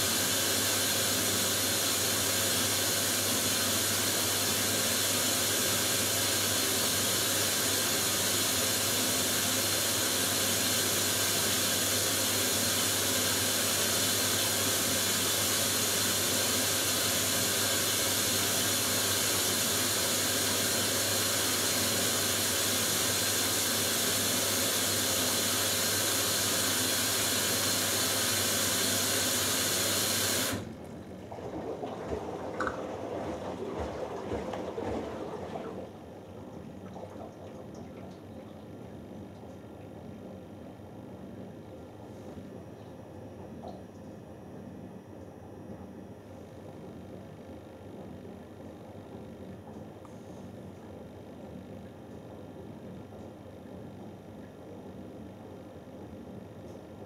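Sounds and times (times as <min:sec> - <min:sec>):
water rushing into washing machine: 0:00.0 - 0:39.8.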